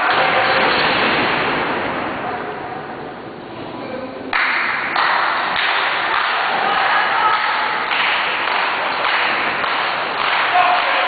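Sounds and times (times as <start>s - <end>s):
crowd cheering and shouting: 6.1s - 11.0s.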